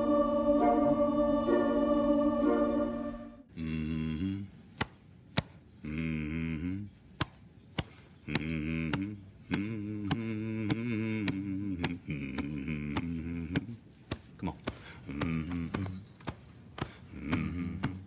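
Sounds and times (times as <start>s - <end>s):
man humming: 3.5s - 4.6s, 5.8s - 7.0s, 8.2s - 13.8s, 17.1s - 18.0s.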